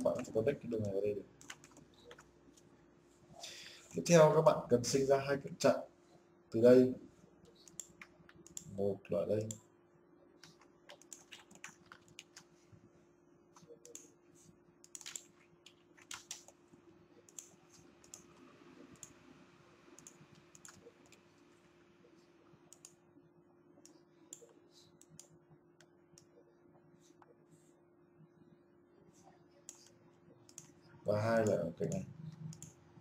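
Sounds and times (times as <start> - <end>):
keyboard and mouse clicking: 0.0 - 2.3, 7.6 - 8.7, 10.4 - 12.5, 14.8 - 16.6, 17.3 - 19.2, 20.0 - 21.2, 22.7 - 23.0, 30.5 - 30.8, 31.4 - 32.8
low steady hum: 0.0 - 33.0.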